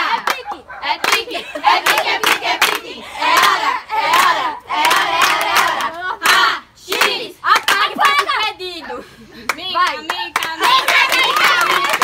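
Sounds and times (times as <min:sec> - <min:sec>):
girls shouting and cheering: 0:07.2 - 0:12.0
hand clapping: 0:09.5 - 0:12.0.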